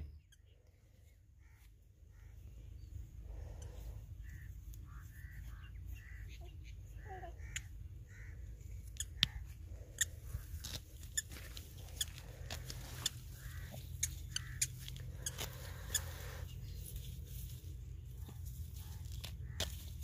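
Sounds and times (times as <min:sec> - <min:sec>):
steady low rumble: 0:00.0 - 0:20.0
crisp snaps of stalks: 0:08.9 - 0:09.5.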